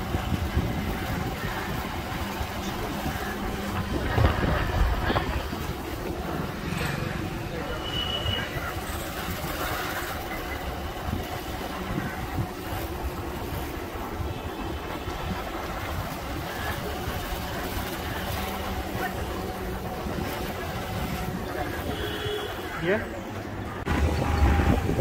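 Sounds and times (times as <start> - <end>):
wind rumble on microphone: 0.0 - 6.6, 10.7 - 17.2, 23.8 - 25.0.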